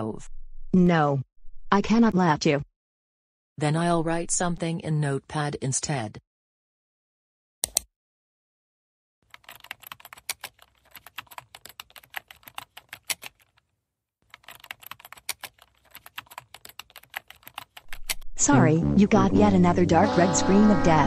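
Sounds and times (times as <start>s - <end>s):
fast typing on computer keyboard: 9.2s - 13.6s, 14.3s - 18.2s.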